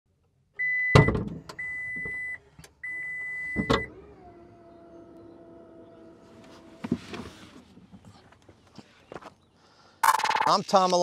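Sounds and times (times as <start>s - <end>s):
warning beeps: 10.0s - 10.6s.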